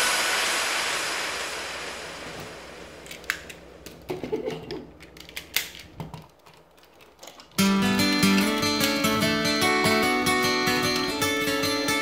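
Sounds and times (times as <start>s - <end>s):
hiss: 0.0s - 3.5s
plastic toy parts clicking: 4.7s - 7.6s.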